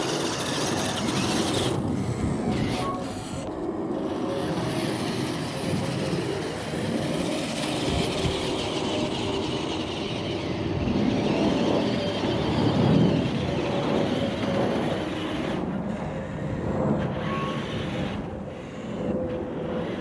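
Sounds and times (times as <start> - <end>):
model truck motor running: 0.0 - 20.0.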